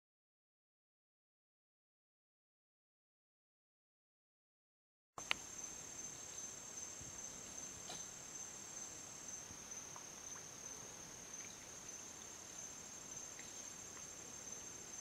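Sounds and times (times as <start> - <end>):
faint ticks: 5.2 - 5.5, 9.8 - 12.4, 13.1 - 14.5
crickets trilling: 5.2 - 15.0.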